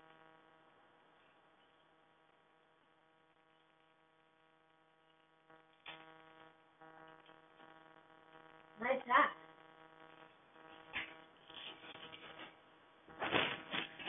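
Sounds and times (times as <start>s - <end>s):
faint electrical hum: 0.0s - 14.0s.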